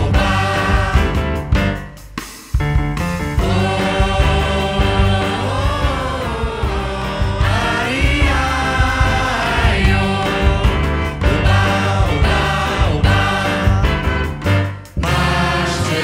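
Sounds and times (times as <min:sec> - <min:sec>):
choir singing samba: 0:00.0 - 0:02.0, 0:03.3 - 0:16.0
steady bass pulse: 0:00.0 - 0:16.0
saxophones: 0:03.4 - 0:16.0
trumpet: 0:08.6 - 0:16.0.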